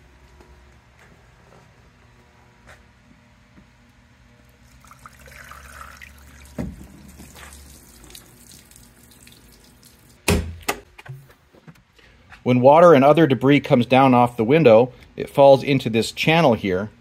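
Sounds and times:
water trickling off window: 4.6s - 10.2s.

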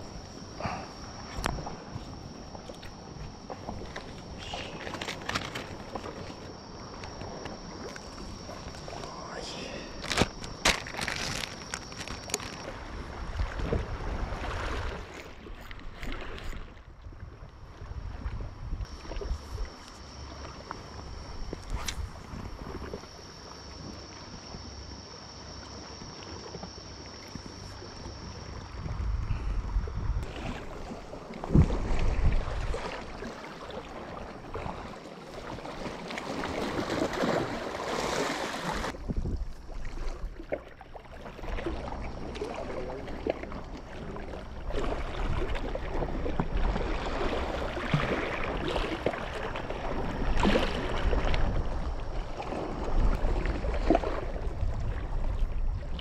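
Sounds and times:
water lapping: 0.0s - 56.0s
wind gusting on microphone: 10.3s - 19.8s, 28.6s - 33.4s, 38.7s - 40.4s.

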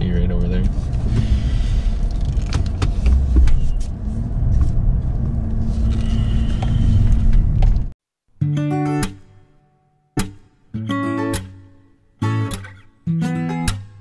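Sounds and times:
truck engine rumble in cab: 0.1s - 7.9s
strummed acoustic guitar: 8.4s - 9.6s, 10.2s - 14.0s.

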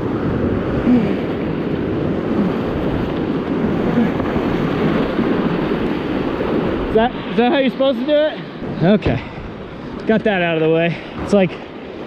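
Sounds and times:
whitewater rapids rushing: 0.8s - 9.1s.

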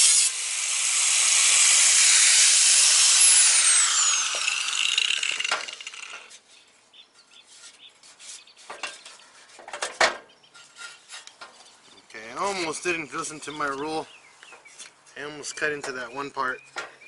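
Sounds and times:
angle grinder cutting metal: 0.0s - 6.4s.

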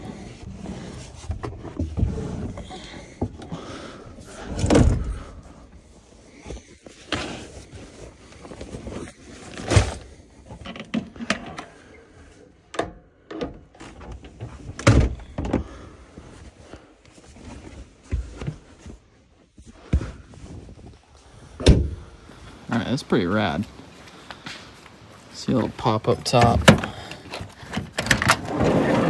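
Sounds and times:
knocks and thunks of cabinet and seat: 4.5s - 5.3s, 14.1s - 15.7s, 21.6s - 22.1s.

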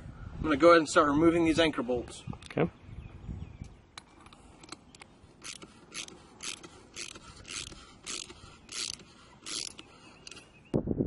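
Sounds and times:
rasping ratchet-like strokes: 5.4s - 10.5s.

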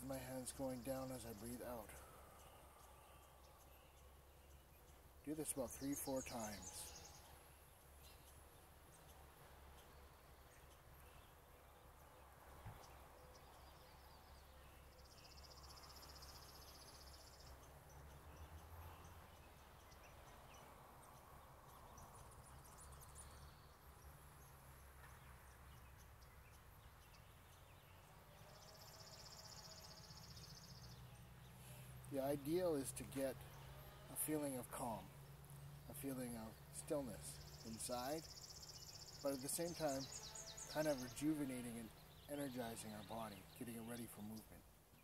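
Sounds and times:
slow breathing: 1.9s - 3.9s, 31.4s - 32.1s.

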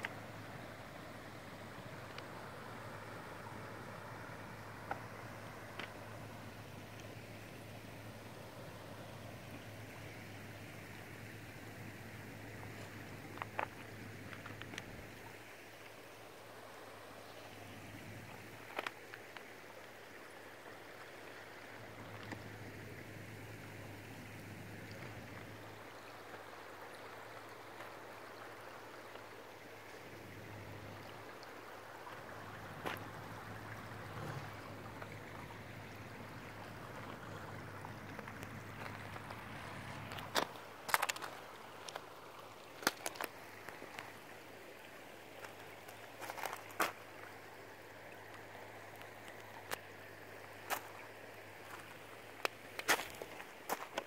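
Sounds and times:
water flowing over stones: 0.0s - 54.0s.

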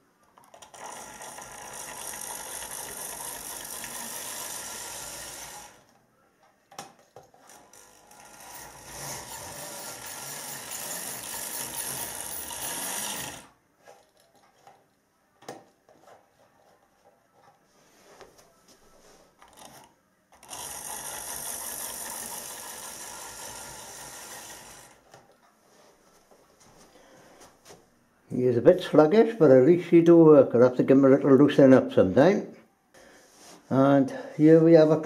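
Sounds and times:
model train motor whirring: 0.5s - 5.9s, 7.4s - 13.5s, 19.4s - 25.2s.

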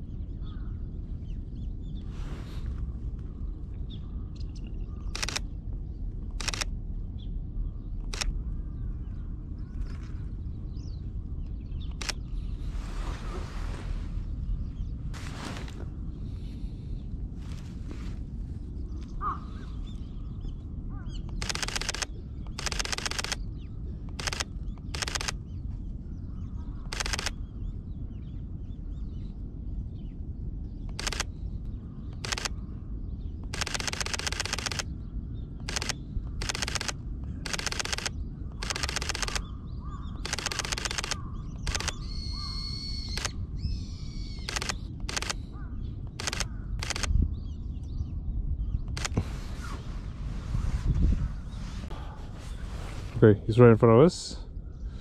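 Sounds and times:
camera shutter clicking: 5.1s - 5.4s, 6.3s - 6.7s, 8.0s - 8.3s, 11.9s - 12.2s, 21.3s - 23.4s, 24.1s - 25.4s, 26.9s - 27.4s, 30.9s - 31.3s, 32.2s - 32.5s, 33.4s - 34.9s, 35.6s - 39.5s, 40.2s - 43.4s, 44.4s - 45.5s, 46.1s - 47.1s, 48.9s - 49.2s.

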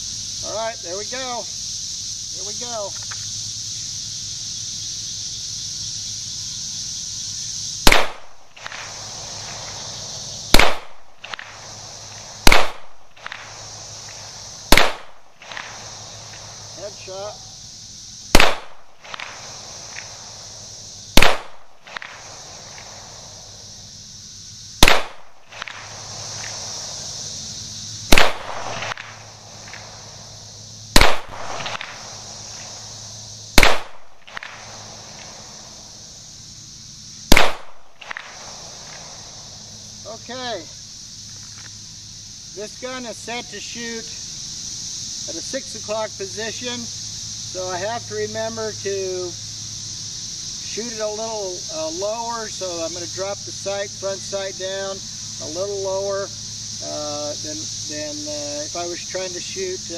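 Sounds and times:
pistol shots with echo: 7.9s - 8.3s, 10.5s - 11.0s, 12.4s - 12.9s, 14.7s - 15.2s, 18.4s - 18.8s, 21.2s - 21.6s, 24.8s - 25.2s, 28.1s - 29.0s, 31.0s - 32.0s, 33.6s - 34.6s, 37.3s - 37.8s.

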